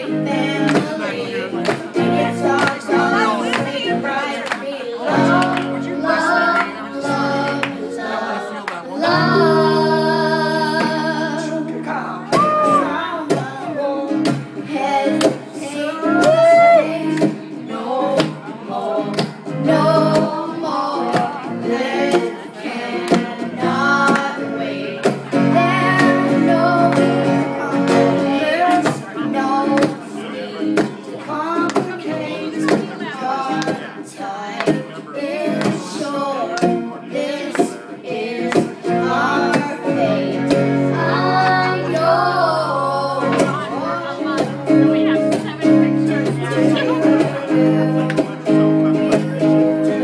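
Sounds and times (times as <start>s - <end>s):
girl and man singing: 0.0s - 50.0s
strummed acoustic guitar: 0.0s - 50.0s.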